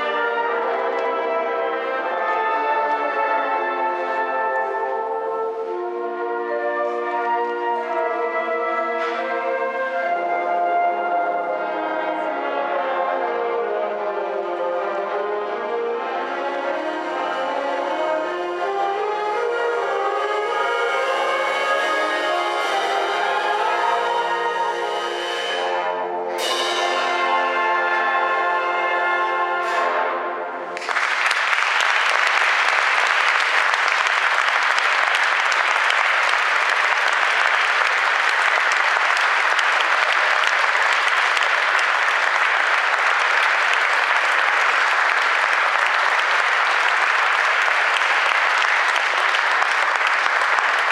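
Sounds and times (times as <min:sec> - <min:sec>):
audience applauding: 0:30.8 - 0:50.9.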